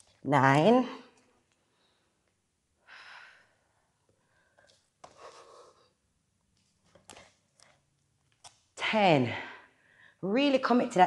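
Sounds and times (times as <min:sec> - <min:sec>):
woman breathing out: 0:02.8 - 0:05.9.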